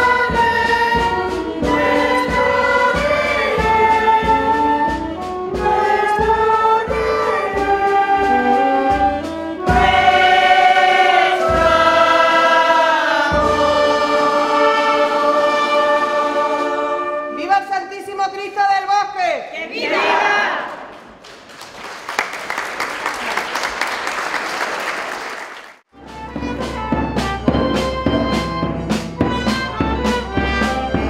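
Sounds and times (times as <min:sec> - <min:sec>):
choir singing: 0:00.0 - 0:17.4, 0:19.6 - 0:20.9.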